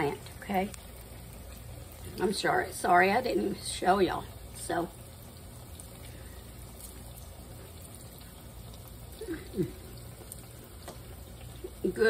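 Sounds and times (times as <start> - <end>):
faint room hiss and hum: 0.0 - 12.0
woman humming approval: 9.2 - 9.9.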